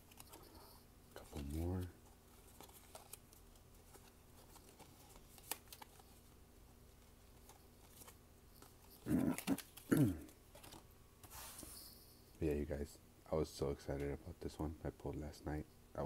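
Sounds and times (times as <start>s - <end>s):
cards clicking: 2.5s - 6.0s.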